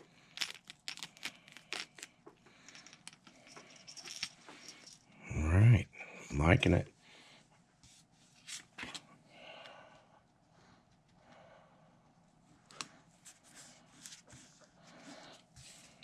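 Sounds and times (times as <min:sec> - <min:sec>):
soft rustling of hands: 0:12.5 - 0:16.0.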